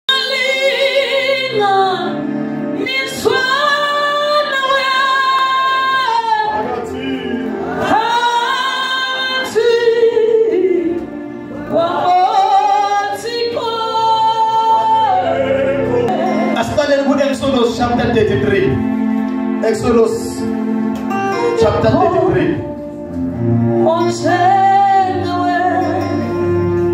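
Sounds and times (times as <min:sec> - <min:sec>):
voices singing gospel song: 0:00.1 - 0:17.2.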